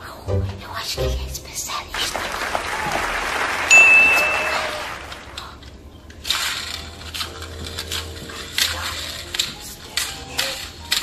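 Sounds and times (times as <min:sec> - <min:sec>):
applause: 0:02.0 - 0:05.4
bright ding: 0:03.7 - 0:04.8.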